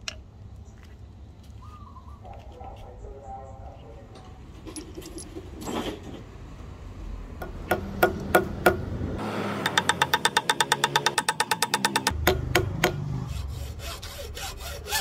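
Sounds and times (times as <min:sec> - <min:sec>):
brass cartridge cases clinking: 0:04.6 - 0:05.7
small hammer tapping metal punch: 0:09.7 - 0:13.0.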